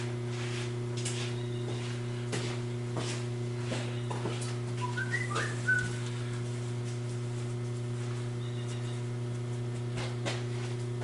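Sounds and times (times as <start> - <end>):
low electrical hum: 0.0 - 11.0
short whistled notes: 4.8 - 6.0.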